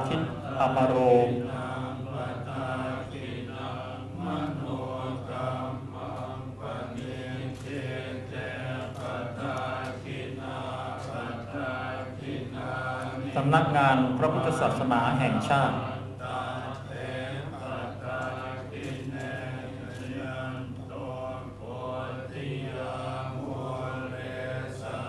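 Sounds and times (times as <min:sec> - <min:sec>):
monks chanting: 0:00.0 - 0:25.0.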